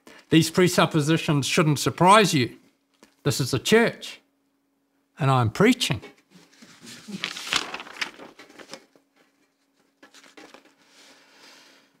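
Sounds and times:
paper rustling and crinkling: 6.3 - 11.1.

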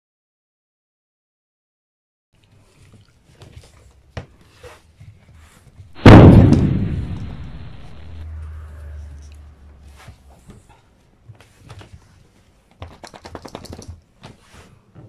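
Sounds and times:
loud thud: 6.0 - 8.2.

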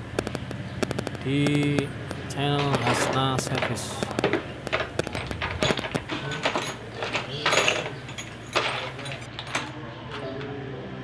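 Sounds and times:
metal tools and screws clinking: 2.3 - 10.3.

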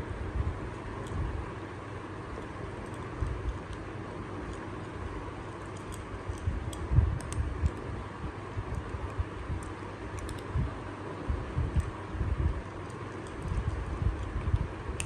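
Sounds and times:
kittens crunching dry food: 8.7 - 10.5, 11.8 - 15.0.

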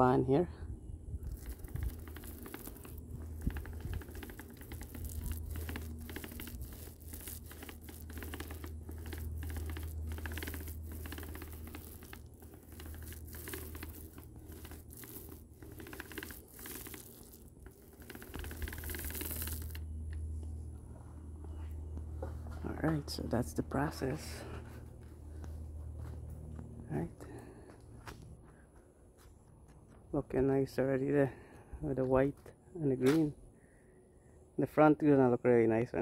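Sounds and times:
steady low hum: 0.0 - 34.8
paint roller on rough stucco: 1.2 - 20.2.

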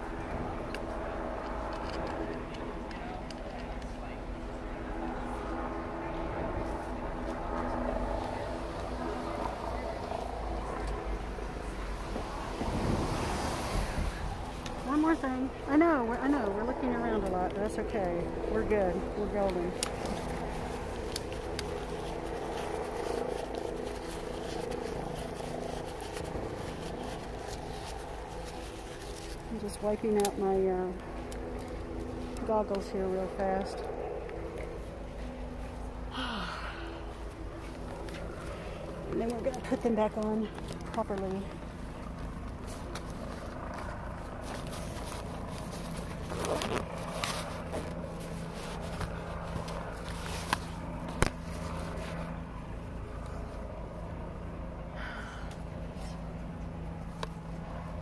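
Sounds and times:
low background hum and rumble: 0.0 - 58.0
goggles rustling and scraping: 18.7 - 34.0, 37.2 - 52.5.

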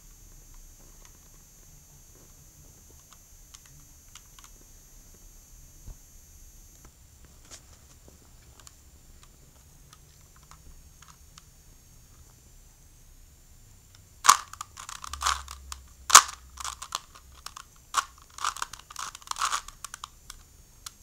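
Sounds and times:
puzzle cube plastic clicks: 9.9 - 11.5, 14.2 - 21.0.

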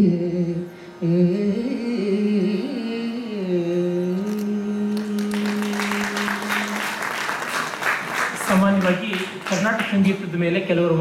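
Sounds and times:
classical vocal melody: 0.0 - 7.3
audience applause: 5.0 - 10.1.

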